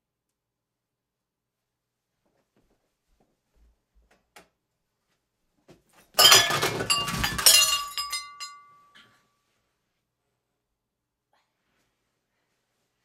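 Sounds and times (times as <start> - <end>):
dishes crashing and breaking: 6.2 - 8.8
shards clinking and ringing: 6.2 - 9.0.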